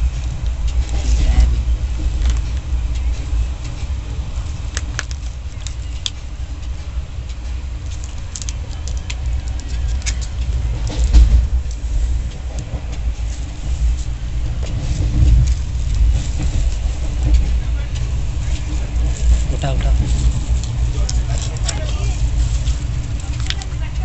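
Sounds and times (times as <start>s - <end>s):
vehicle rumbling in motion: 0.0s - 24.0s
vehicle jolt: 9.9s - 24.0s.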